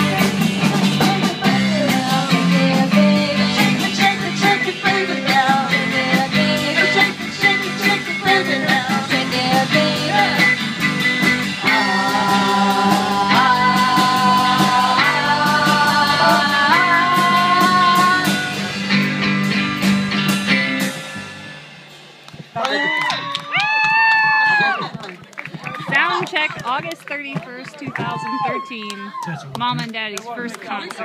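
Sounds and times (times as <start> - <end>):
person singing: 0.0 - 10.6, 11.6 - 18.7
electric guitars: 0.0 - 26.4
steady drumbeat: 0.0 - 31.0.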